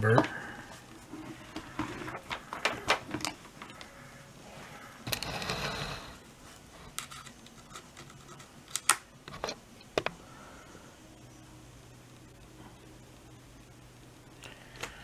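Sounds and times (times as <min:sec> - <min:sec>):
cable rustling: 0:00.8 - 0:03.9.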